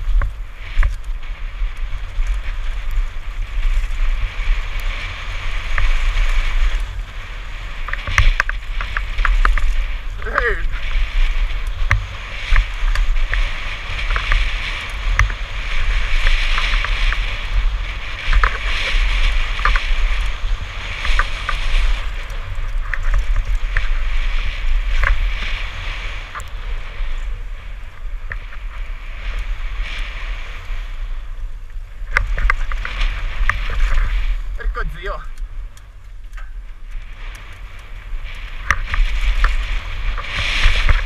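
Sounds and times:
bike clicks and knocks: 0:00.0 - 0:01.2, 0:07.8 - 0:09.9, 0:18.2 - 0:20.4, 0:21.0 - 0:24.0, 0:35.4 - 0:41.0
wind buffeting microphone: 0:00.0 - 0:41.0.

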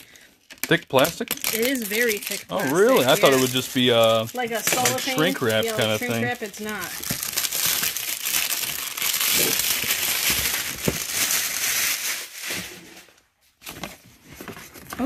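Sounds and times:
plastic wrap crinkling: 0:00.0 - 0:13.8.

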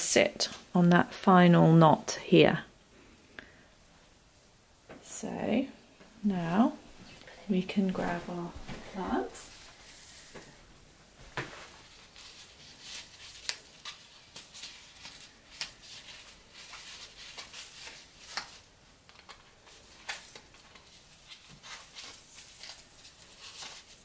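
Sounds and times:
rustling of leaves and fabric: 0:06.4 - 0:24.0.

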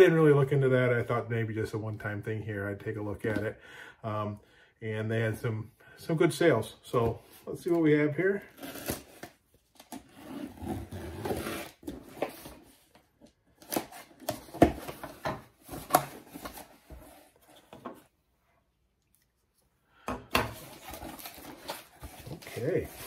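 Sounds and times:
cardboard box scraping and rustling: 0:10.0 - 0:12.7.

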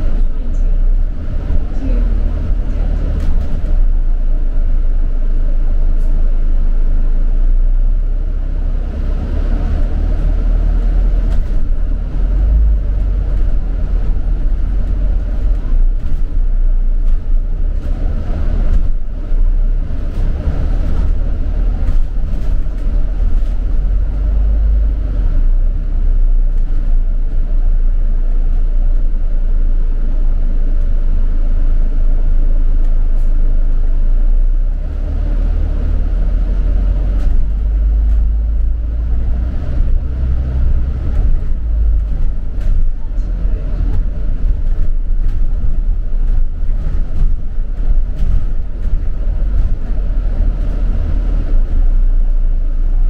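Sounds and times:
bus engine rumble and road noise: 0:00.0 - 0:53.0.

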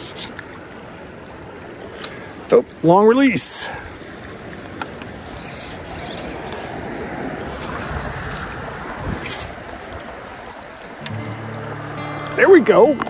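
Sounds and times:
river current rushing: 0:00.0 - 0:13.0
wind on microphone: 0:05.1 - 0:11.0.

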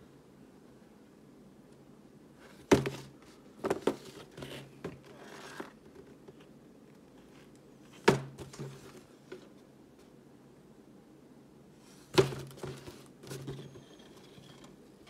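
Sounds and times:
cardboard rustling: 0:02.5 - 0:06.5, 0:12.0 - 0:13.9
knocks on cardboard box: 0:02.7 - 0:04.0.

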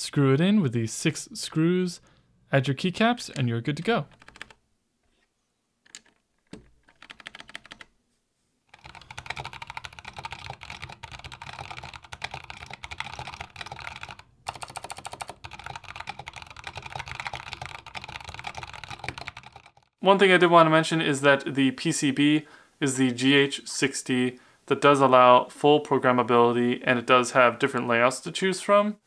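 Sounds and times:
mechanical keyboard typing: 0:04.1 - 0:04.6, 0:05.8 - 0:07.9, 0:08.7 - 0:19.9.

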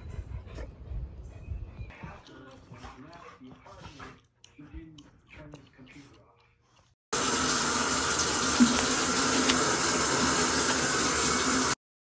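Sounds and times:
water pouring from tap: 0:07.2 - 0:11.8.

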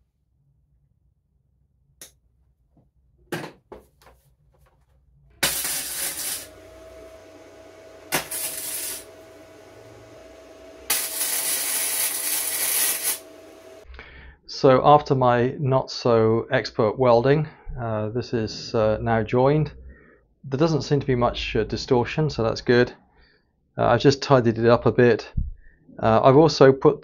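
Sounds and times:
welding arc crackling and hissing: 0:05.4 - 0:13.9.

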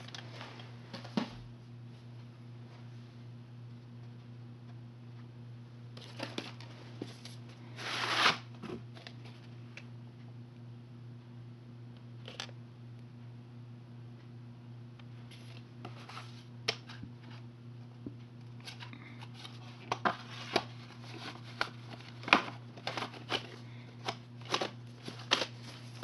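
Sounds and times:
steady low hum: 0:00.0 - 0:26.0
plastic cassettes clicking and knocking: 0:18.7 - 0:25.8.

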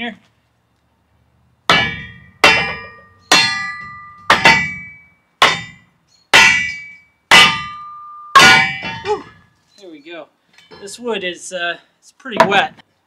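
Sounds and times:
hammer clanging on metal splitter: 0:01.7 - 0:09.5, 0:12.4 - 0:12.8.

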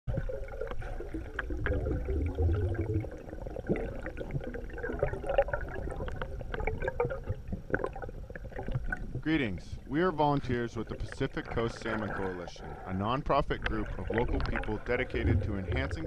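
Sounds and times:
underwater river gurgling: 0:00.1 - 0:16.0.

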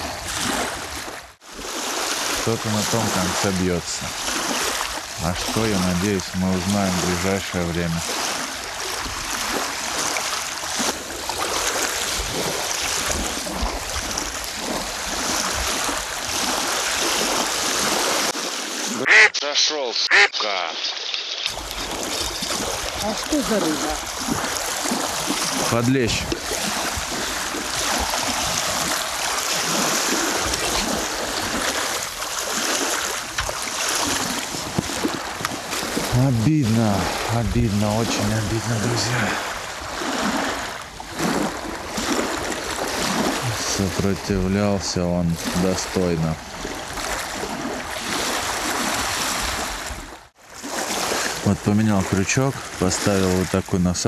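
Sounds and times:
waves washing in: 0:00.0 - 0:54.0
wind gusting on microphone: 0:21.5 - 0:44.0.

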